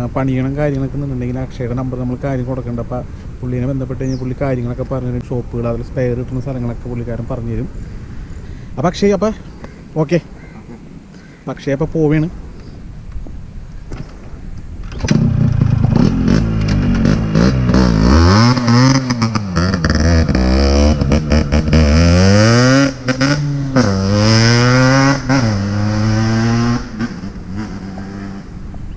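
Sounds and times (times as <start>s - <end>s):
motorcycle accelerating: 14.8s - 28.9s.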